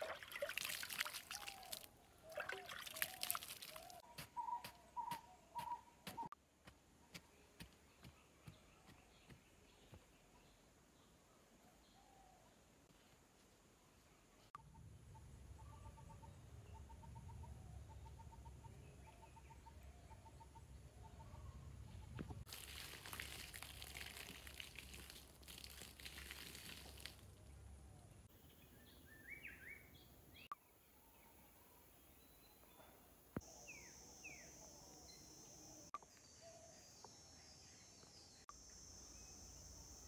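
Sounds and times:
bird chirps and calls: 0:01.3 - 0:06.3.

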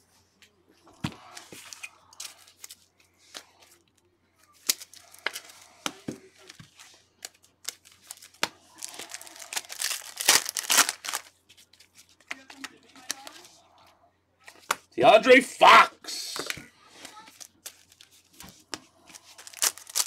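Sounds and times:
wrapper crinkling and tearing: 0:04.6 - 0:05.6, 0:07.2 - 0:13.4, 0:17.3 - 0:18.4, 0:19.2 - 0:20.0.

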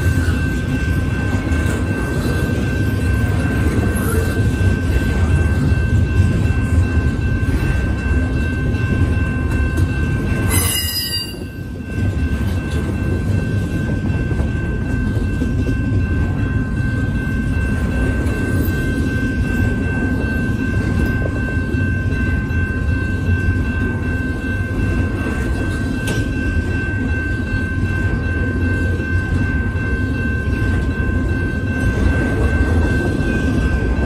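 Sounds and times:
train cars rumbling on rails: 0:00.0 - 0:34.0
high-pitched wheel squeal: 0:10.5 - 0:11.5.

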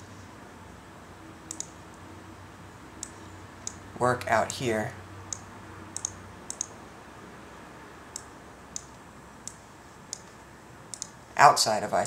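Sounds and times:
computer mouse button clicking: 0:01.5 - 0:01.8, 0:06.0 - 0:06.7, 0:10.9 - 0:11.2.

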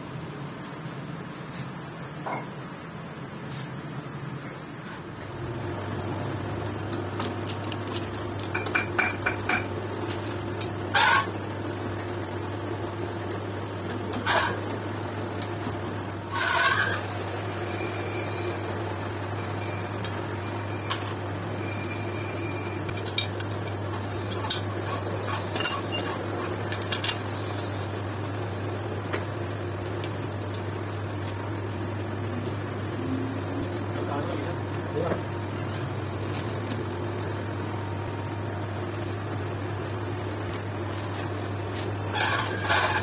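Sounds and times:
steel parts clinking: 0:07.2 - 0:10.6, 0:22.9 - 0:27.3.

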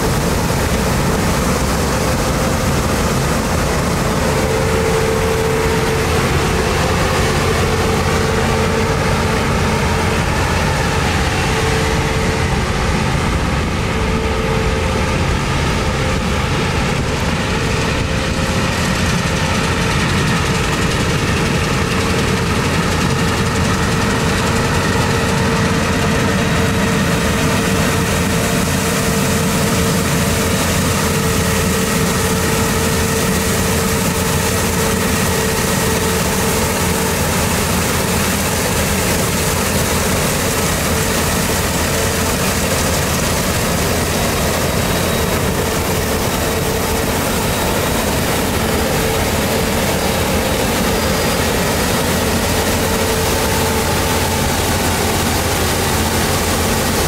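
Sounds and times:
combine harvester engine drone: 0:00.0 - 0:57.0
steady machine whine: 0:00.0 - 0:57.0.

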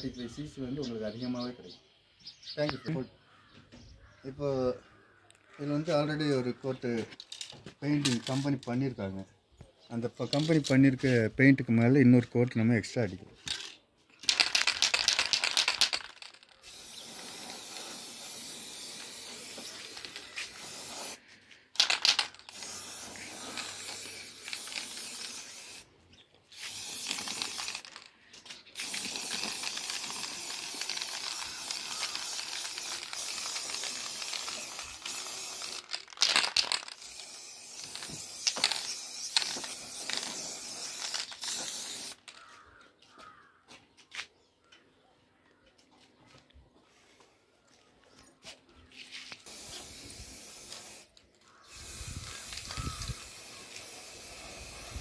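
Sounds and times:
spray paint can hissing: 0:13.5 - 0:25.9, 0:26.5 - 0:42.5, 0:49.3 - 0:55.0.

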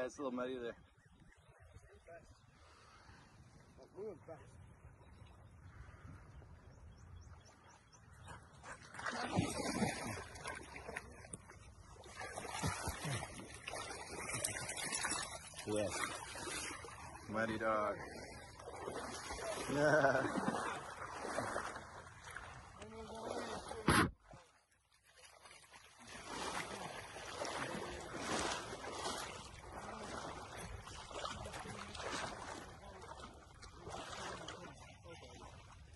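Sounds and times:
dog splashing through water: 0:08.6 - 0:17.3, 0:25.2 - 0:35.4.

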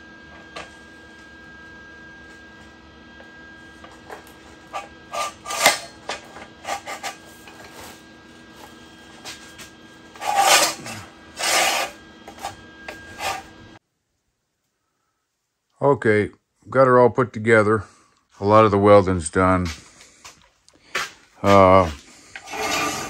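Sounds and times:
metal channel scraping through rollers: 0:04.2 - 0:08.0, 0:09.2 - 0:13.6, 0:21.8 - 0:23.0.

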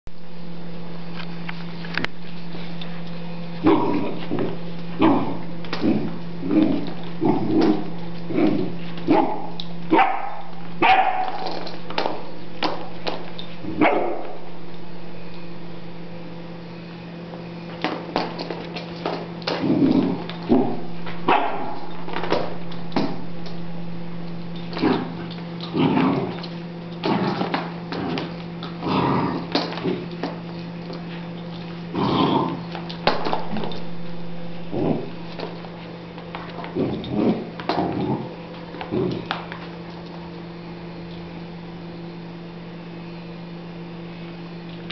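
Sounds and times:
steady low hum: 0:00.1 - 0:44.9
puppy barking: 0:09.1 - 0:11.4, 0:13.8 - 0:14.4, 0:20.5 - 0:21.9.

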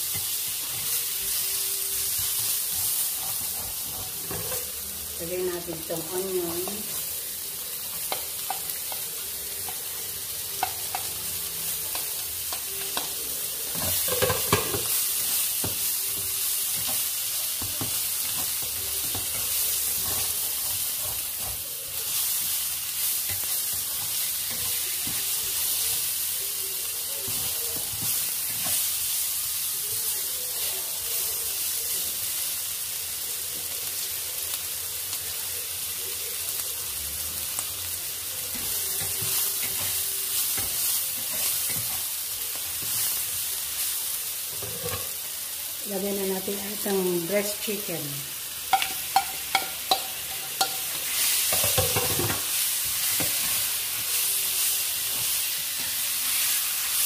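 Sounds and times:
vegetables sizzling in oil: 0:00.0 - 0:57.0.

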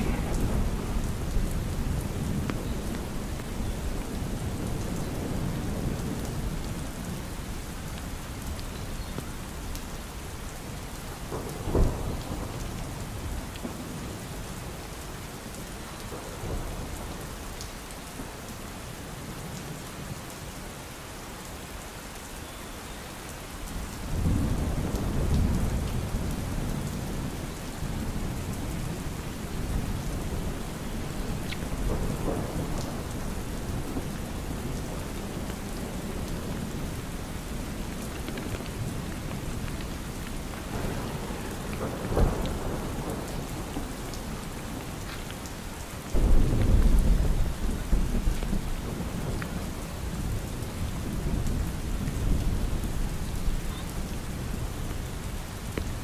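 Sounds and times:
rolling thunder: 0:00.0 - 0:07.3, 0:11.2 - 0:14.0, 0:23.7 - 0:53.6
steady rain: 0:00.0 - 0:56.0.

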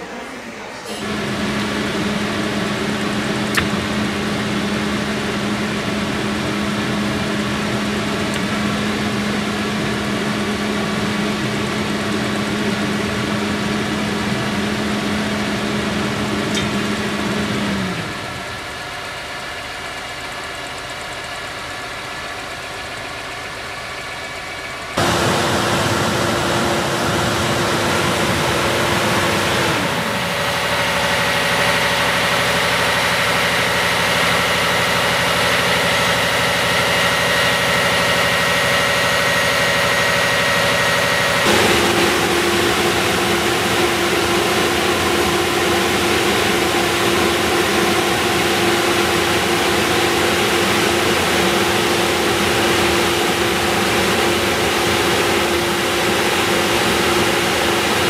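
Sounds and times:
diesel engine idling: 0:00.0 - 0:58.0
second steady hum: 0:25.0 - 0:58.0
steady hum: 0:40.8 - 0:58.0.

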